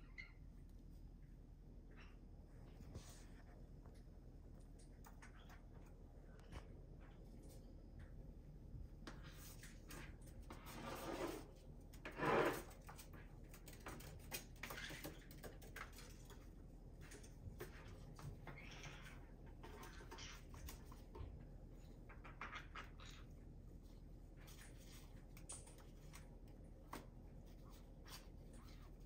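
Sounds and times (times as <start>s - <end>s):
bird feet and beaks tapping: 12.8s - 21.4s.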